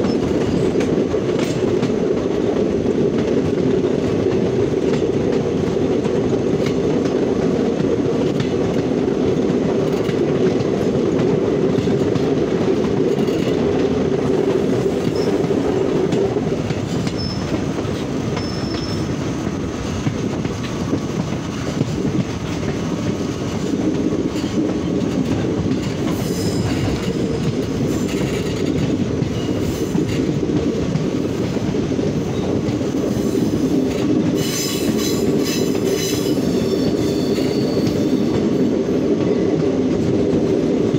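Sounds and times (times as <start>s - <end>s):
train wheels squealing: 0.0s - 0.8s, 14.8s - 15.6s, 16.9s - 17.6s, 18.3s - 19.2s, 26.1s - 28.7s, 32.3s - 38.7s
train wheels rumbling on rails: 0.0s - 40.9s.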